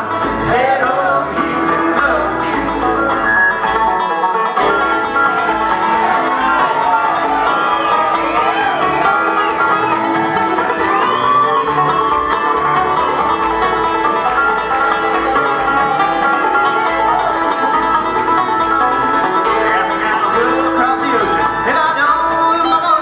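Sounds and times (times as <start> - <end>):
bluegrass band playing: 0.0 - 23.0.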